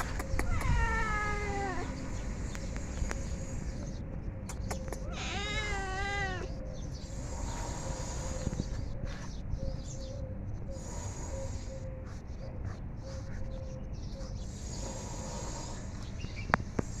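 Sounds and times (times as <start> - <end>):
cat meowing: 0.4 - 2.0, 5.0 - 6.6.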